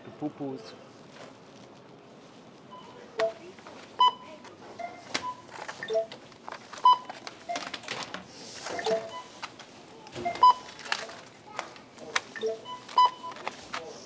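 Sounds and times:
checkout scanner beeps: 2.7s - 7.9s, 8.7s - 9.5s, 10.2s - 11.0s, 12.3s - 13.7s.

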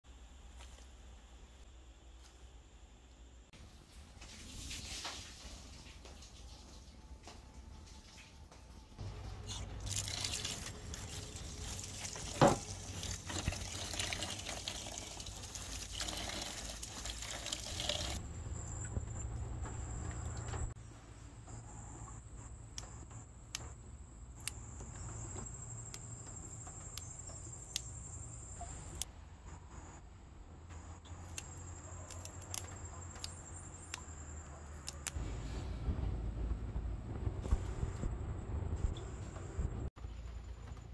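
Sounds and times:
vegetable stems snapping: 34.8s - 35.2s.

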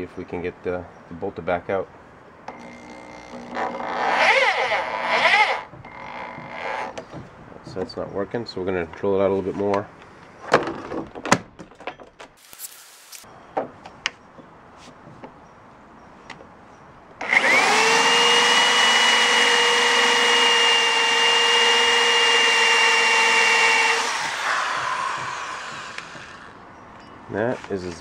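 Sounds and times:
power drill whining: 2.5s - 7.0s, 17.2s - 26.6s.

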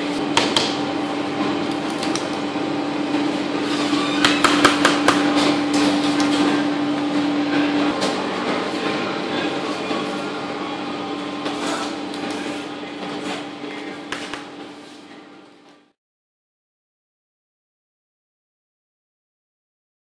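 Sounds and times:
steady kitchen hum: 0.0s - 16.0s.

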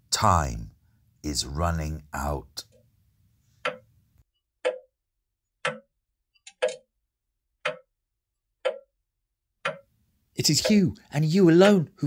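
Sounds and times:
clock ticking: 3.6s - 3.9s, 4.6s - 5.0s, 5.6s - 6.9s, 7.6s - 8.0s, 8.6s - 9.0s, 9.6s - 12.0s.

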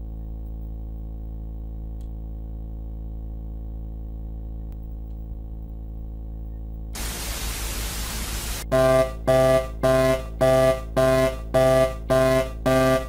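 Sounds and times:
low steady drone: 6.9s - 13.0s
tv static hiss: 7.0s - 8.6s
buzzy electronic alert beeps: 7.0s - 13.0s.

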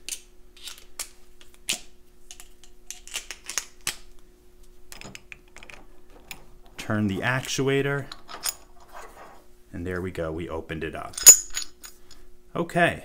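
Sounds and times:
faint steady hum: 0.0s - 13.0s
metal hand tools clinking: 11.1s - 12.1s.

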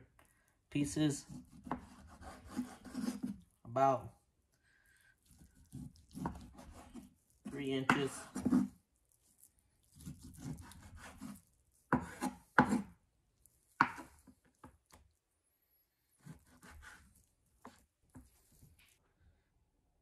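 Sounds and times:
knife slicing through raw meat: 5.2s - 13.0s, 16.2s - 18.9s.

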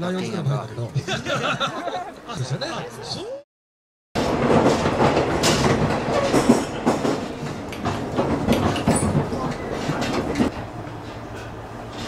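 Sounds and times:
passengers chatting: 0.0s - 3.4s, 4.4s - 12.0s
train car knocks and rattles: 4.2s - 12.0s
train carriage rumble: 4.2s - 12.0s.

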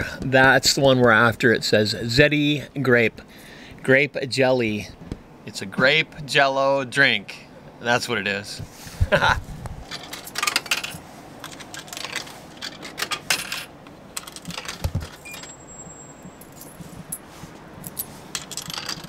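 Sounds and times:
coins dropping into coin slot: 9.9s - 15.6s, 17.8s - 19.0s
coins clinking in hand: 9.9s - 19.0s.

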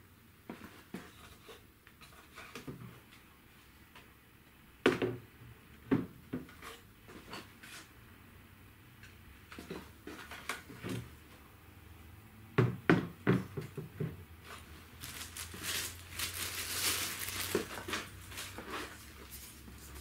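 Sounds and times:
plastic bag crinkling: 14.5s - 20.0s.

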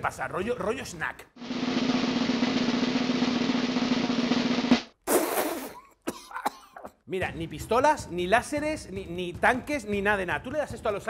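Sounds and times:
snare drum roll: 1.4s - 4.9s.

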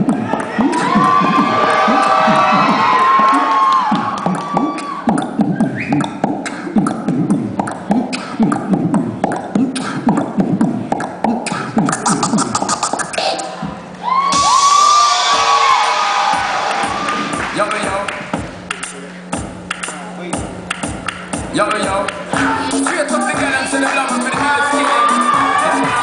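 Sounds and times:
crowd cheering: 0.0s - 5.8s, 13.5s - 18.1s, 22.4s - 26.0s
man beatboxing through speakers: 0.0s - 13.7s, 16.8s - 26.0s
crowd whistling: 0.2s - 6.2s, 22.4s - 26.0s.

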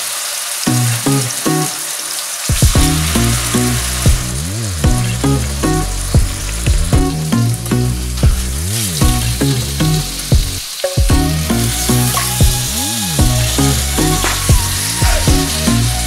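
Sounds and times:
meat sizzling in a frying pan: 0.0s - 4.7s
background music: 0.7s - 16.0s.

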